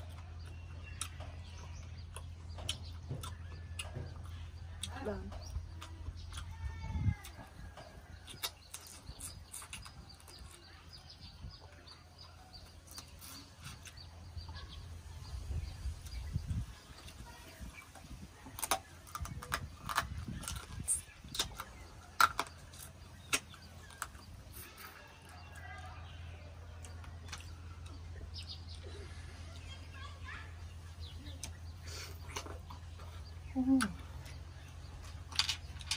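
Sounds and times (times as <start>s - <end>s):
chewing and mouth clicks: 0.0s - 14.7s, 16.0s - 29.8s.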